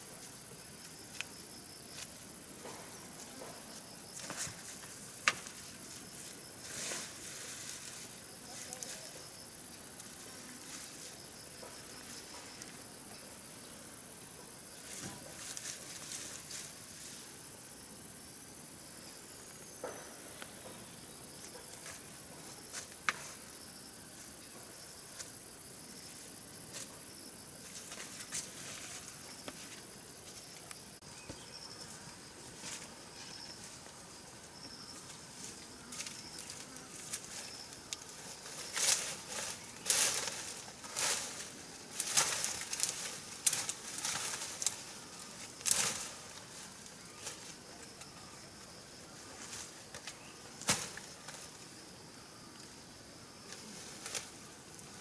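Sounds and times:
insects buzzing: 0.0s - 55.0s
sharp rustles and snaps: 36.0s - 44.9s.

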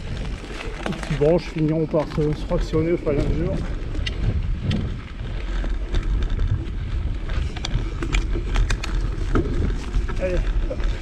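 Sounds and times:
bike clicks and rattles: 0.0s - 11.0s
wind buffeting microphone: 0.0s - 11.0s.

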